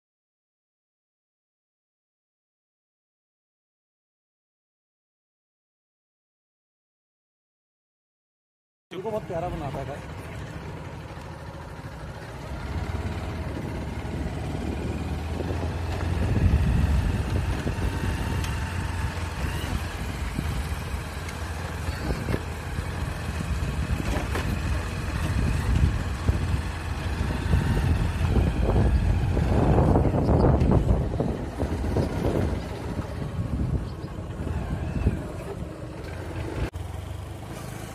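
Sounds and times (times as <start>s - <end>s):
vehicle engine and road noise: 8.9s - 37.9s.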